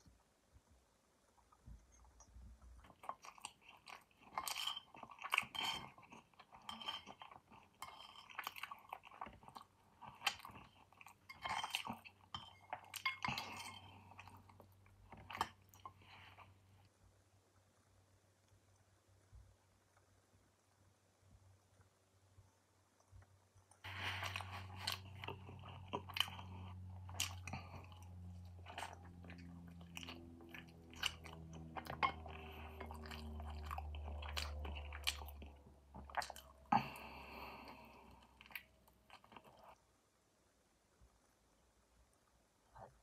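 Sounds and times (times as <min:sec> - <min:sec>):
chewing with wet mouth clicks: 0:01.4 - 0:16.5, 0:23.0 - 0:37.0, 0:37.7 - 0:39.9.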